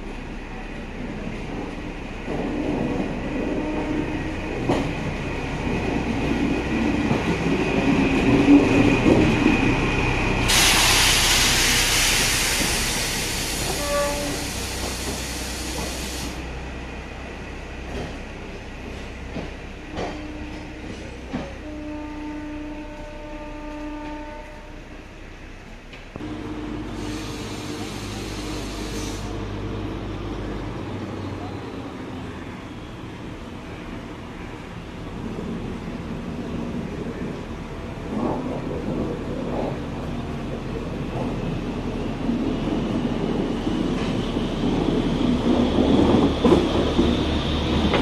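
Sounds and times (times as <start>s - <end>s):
rail car rumbling past: 0.0s - 48.0s
loud hiss: 10.4s - 16.4s, 26.8s - 29.4s
horn blasts: 13.7s - 14.5s, 20.0s - 24.9s.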